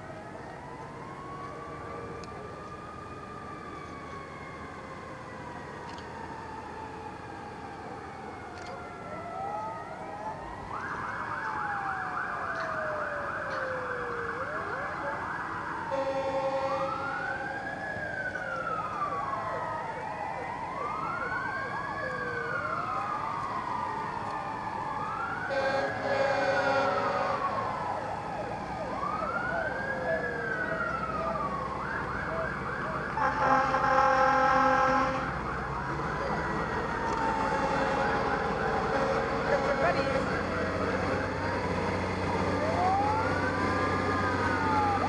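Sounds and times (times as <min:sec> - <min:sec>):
emergency vehicle sirens wailing: 0:00.0 - 0:45.0
low steady horn tone: 0:15.9 - 0:17.4, 0:25.5 - 0:27.7, 0:33.2 - 0:35.4, 0:37.4 - 0:41.0.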